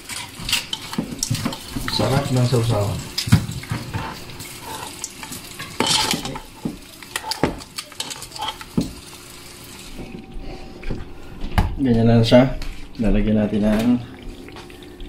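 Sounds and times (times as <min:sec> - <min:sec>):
kitchen utensils and dishes clinking: 0:00.0 - 0:10.2.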